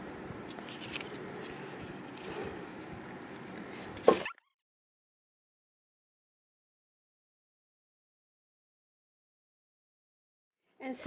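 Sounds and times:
paper rustling and clicking: 0.5s - 4.2s.

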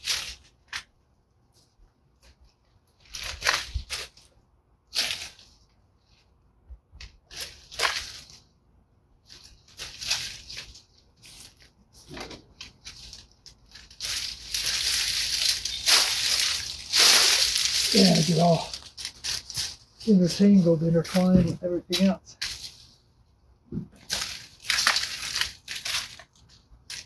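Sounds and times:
rustle of dry leaves: 12.8s - 23.0s, 24.1s - 26.2s.

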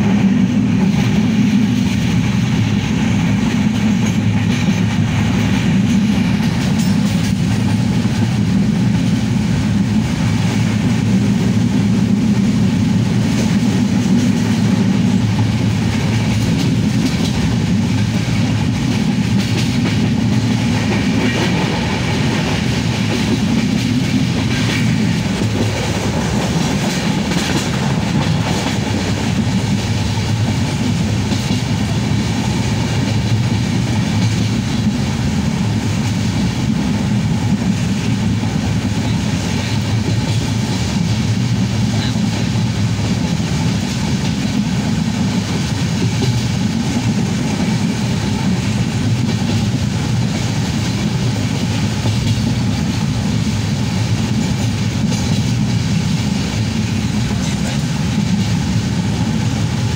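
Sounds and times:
train wheels rumbling: 0.0s - 59.9s.

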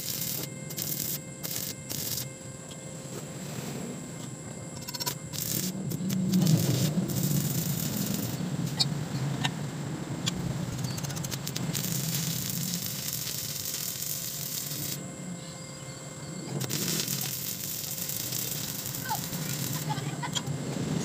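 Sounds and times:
welding arc crackling: 0.0s - 2.3s, 4.8s - 8.8s, 10.2s - 15.3s, 16.4s - 21.0s.

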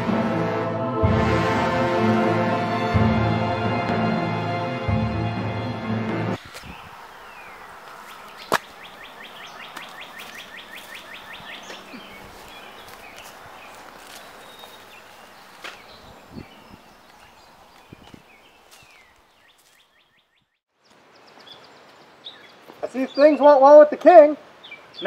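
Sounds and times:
woodland ambience: 3.5s - 25.0s
bird trilling chirps: 6.4s - 20.6s.

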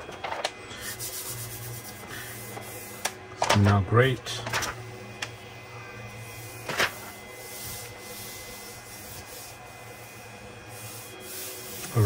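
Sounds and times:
steady low hum: 0.0s - 12.0s
hands rubbing magnetic sheet: 0.8s - 3.2s, 6.6s - 10.1s, 10.7s - 12.0s.

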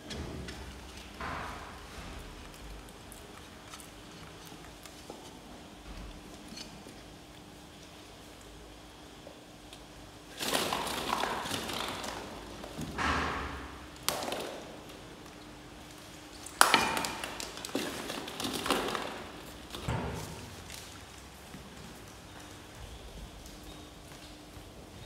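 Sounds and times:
plastic balls clattering: 10.3s - 12.8s, 16.5s - 21.0s.

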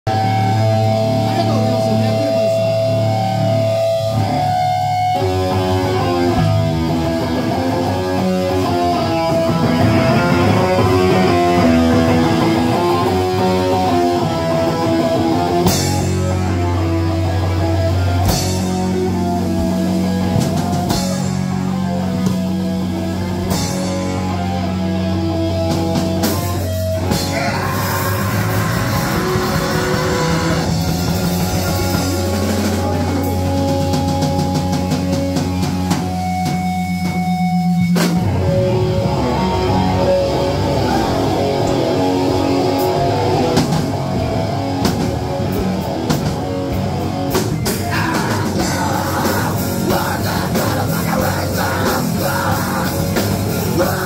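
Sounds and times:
distorted electric guitars: 0.0s - 54.0s
heavy rock band playing: 0.0s - 54.0s
drum kit: 0.1s - 54.0s.

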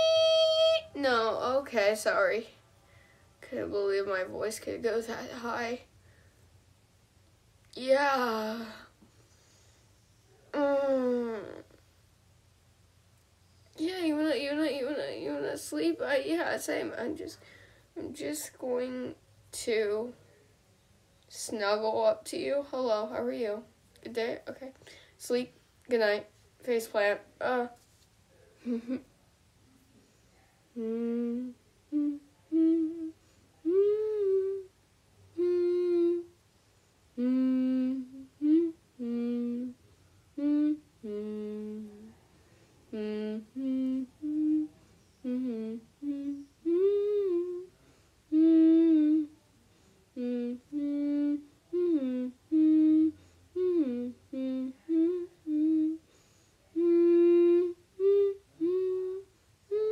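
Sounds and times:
person humming a slow tune: 0.0s - 0.9s, 10.5s - 11.8s, 28.6s - 29.1s, 30.7s - 36.4s, 37.1s - 42.2s, 42.9s - 49.5s, 50.1s - 59.9s.

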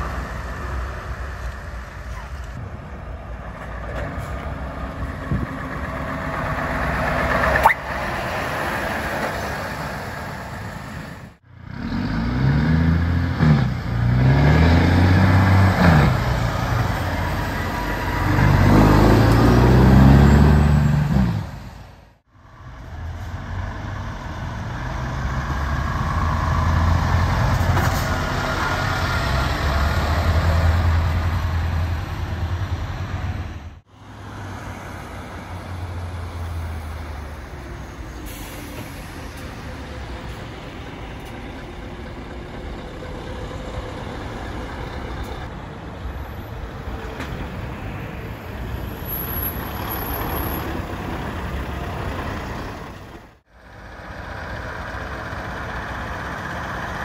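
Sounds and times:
truck diesel engine passing: 0.0s - 57.0s
truck engine revving: 4.4s - 21.9s, 23.4s - 37.9s.

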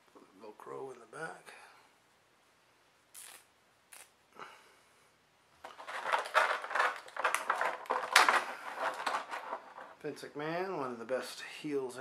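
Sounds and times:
plastic blister tray crinkling: 5.6s - 10.0s
soft rustles: 5.6s - 10.1s.

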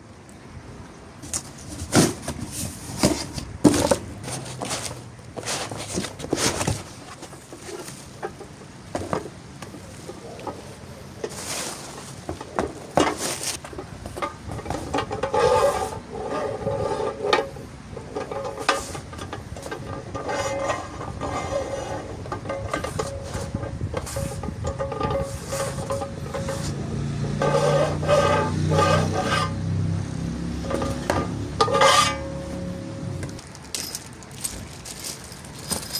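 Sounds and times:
foam and cardboard rustling: 1.2s - 8.3s, 10.6s - 16.0s.

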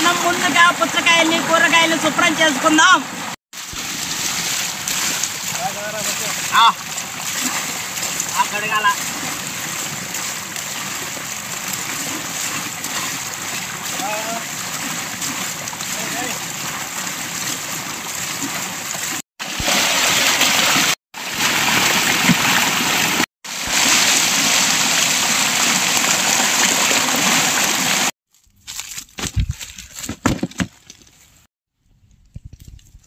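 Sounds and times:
running water rushing: 0.0s - 28.2s
scattered knocks and rustles: 29.2s - 31.2s.

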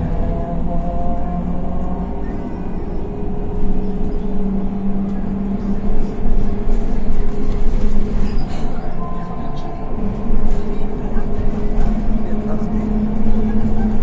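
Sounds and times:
bus engine drone from inside: 0.0s - 14.0s.

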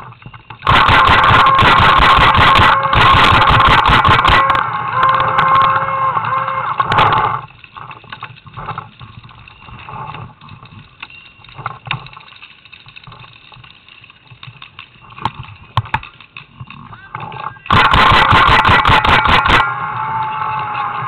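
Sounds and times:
loud steady held tones: 0.0s - 7.5s, 17.0s - 21.0s
paintball markers firing: 0.7s - 4.6s, 17.7s - 19.6s.

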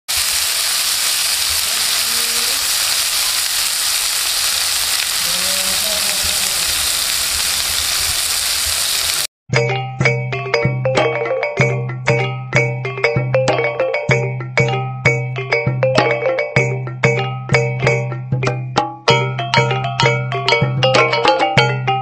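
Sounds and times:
prawns sizzling in oil: 0.1s - 9.3s
music of struck ringing notes: 9.5s - 22.0s.

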